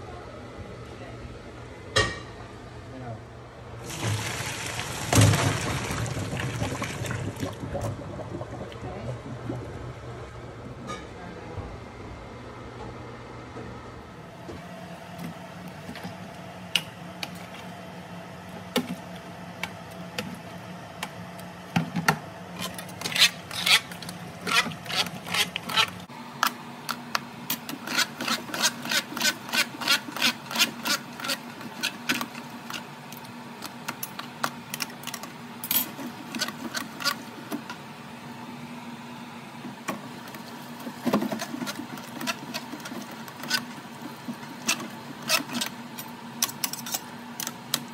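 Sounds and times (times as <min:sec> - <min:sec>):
steady hum: 0:00.0 - 0:47.9
food mill blade scraping and clicking: 0:22.6 - 0:35.3, 0:36.0 - 0:37.3, 0:41.0 - 0:47.8.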